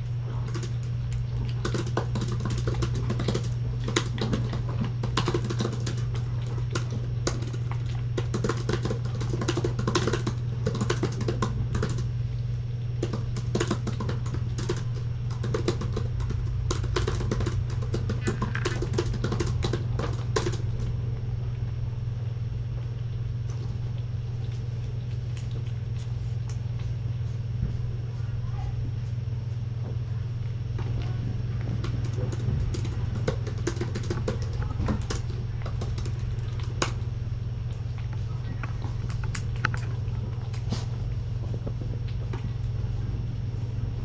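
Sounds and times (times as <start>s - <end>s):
steady low hum: 0.0s - 44.0s
laptop keyboard typing: 1.6s - 7.6s, 8.2s - 12.1s, 13.0s - 20.9s, 31.7s - 37.0s.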